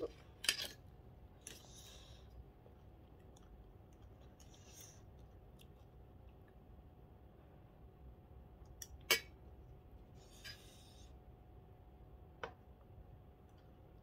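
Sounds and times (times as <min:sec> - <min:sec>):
fork scraping: 0:10.2 - 0:11.1.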